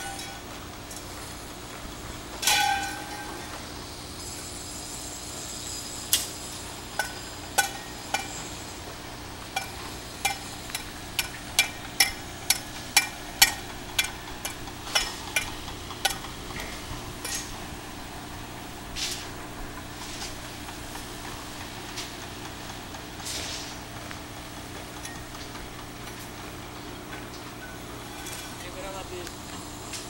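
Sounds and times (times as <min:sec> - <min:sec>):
steel bars clinking: 0:02.4 - 0:03.4.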